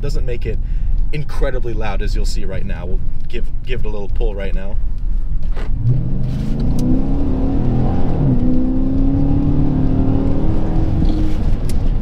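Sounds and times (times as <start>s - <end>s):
car engine accelerating hard: 5.6s - 12.0s.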